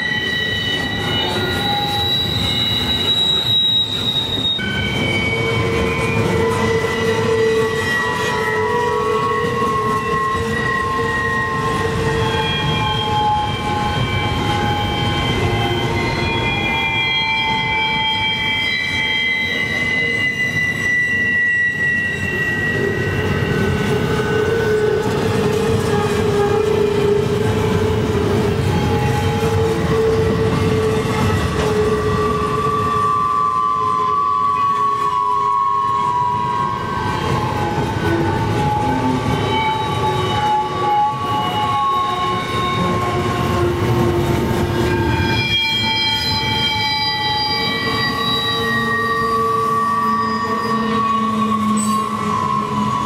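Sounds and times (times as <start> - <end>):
low rumble of train cars: 0.0 - 53.0
train wheels squealing on rails: 0.0 - 53.0.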